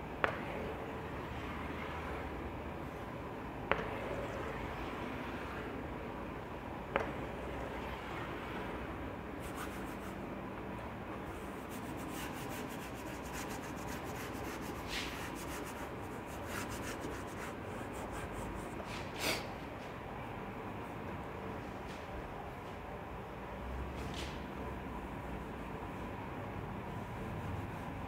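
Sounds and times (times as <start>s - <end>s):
chalk scraping on blackboard: 9.4s - 10.2s, 11.4s - 19.4s.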